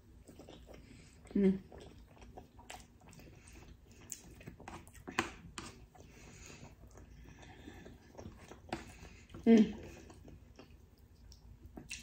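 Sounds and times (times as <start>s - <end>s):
chewing: 0.0s - 12.0s.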